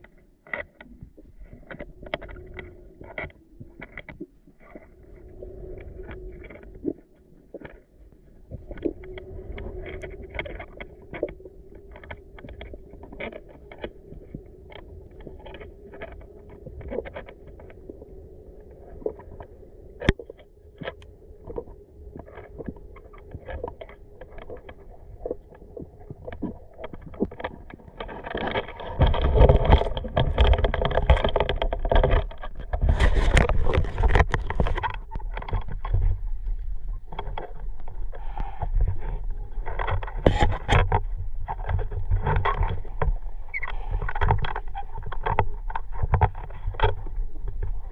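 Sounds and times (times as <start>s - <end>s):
faint steady hum: 0.0s - 47.9s
underwater sharp clicks: 19.0s - 38.9s.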